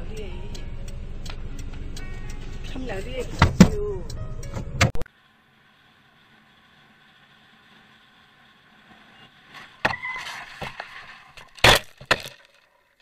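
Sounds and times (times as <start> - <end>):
scraping and knocking of tumbling bike: 8.9 - 13.0.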